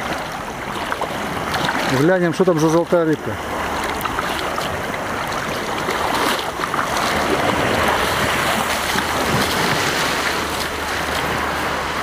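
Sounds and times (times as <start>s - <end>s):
waves washing over sand: 0.0s - 12.0s.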